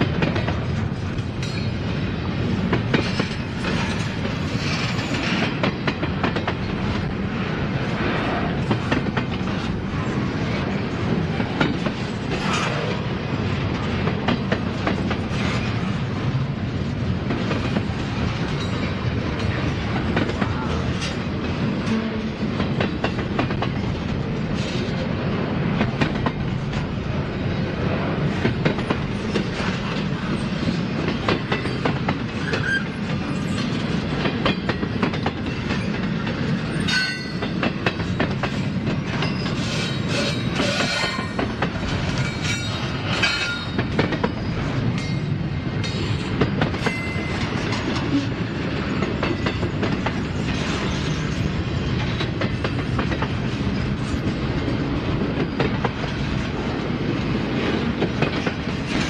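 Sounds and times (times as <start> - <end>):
wheels clicking over rail joints: 0.0 - 7.2, 28.3 - 59.0
train cars rumbling past: 0.0 - 59.0.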